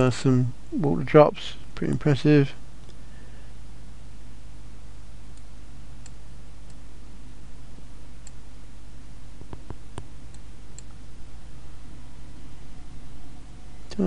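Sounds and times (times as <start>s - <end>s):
low electrical hum: 0.0s - 14.0s
computer mouse clicking: 9.4s - 11.0s.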